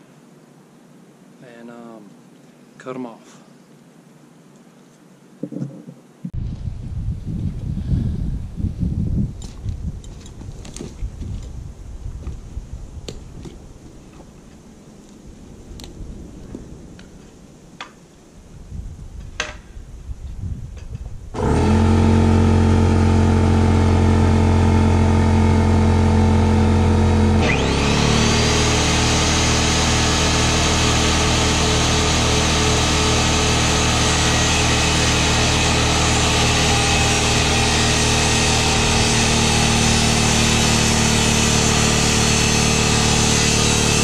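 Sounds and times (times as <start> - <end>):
circular saw cutting wood: 21.4 - 44.0.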